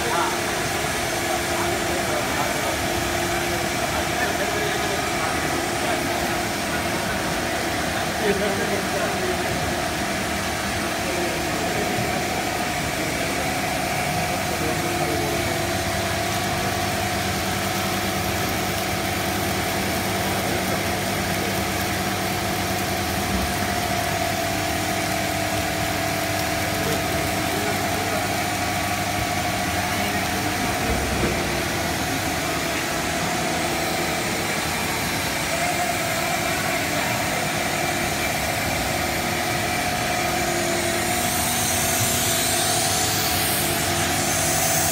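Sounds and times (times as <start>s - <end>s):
machine drone: 0.8s - 44.9s.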